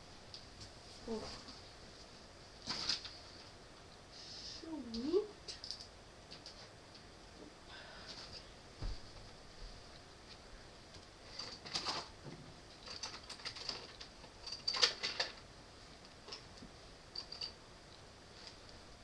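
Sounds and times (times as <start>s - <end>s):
small objects clicking on a counter: 5.5s - 6.6s.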